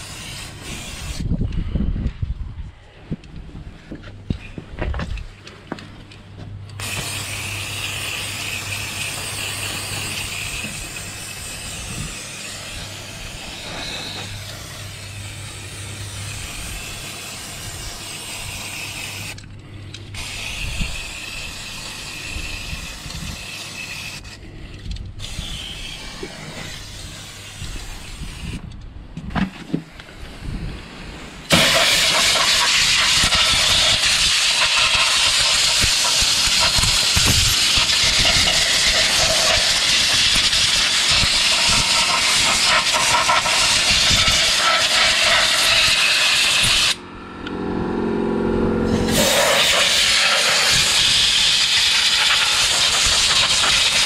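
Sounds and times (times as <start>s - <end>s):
aerosol spray hissing: 6.8s - 19.4s, 31.5s - 47.0s, 48.9s - 54.0s.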